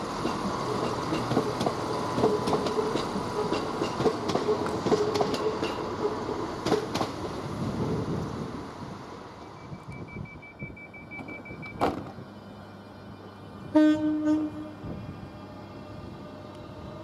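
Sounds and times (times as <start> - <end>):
low rumble of standing train: 0.0 - 17.0
train doors shutting: 0.0 - 17.0
rapid high warning beeps: 9.4 - 11.8
train horn blast: 13.7 - 15.0.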